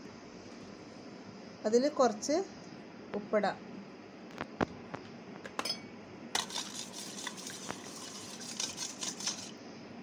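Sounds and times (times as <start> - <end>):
metal spoon scraping steel bowl: 6.4 - 9.5.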